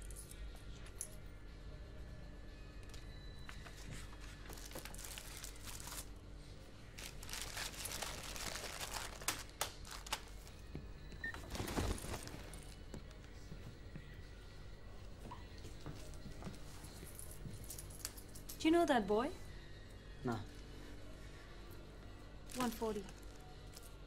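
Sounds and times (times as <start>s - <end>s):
paper rustling and crinkling: 3.6s - 6.2s, 7.0s - 10.5s, 11.4s - 12.7s.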